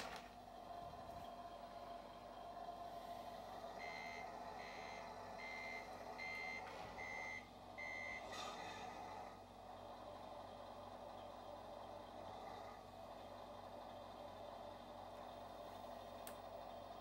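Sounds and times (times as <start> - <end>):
engine hum: 0.0 - 17.0
reversing alarm beeps: 3.8 - 8.3.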